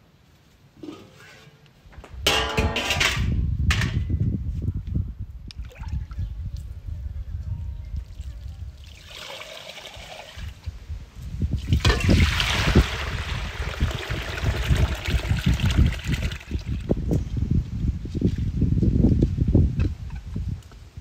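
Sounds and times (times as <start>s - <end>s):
water pouring into metal basin: 8.8s - 10.6s, 11.6s - 16.9s.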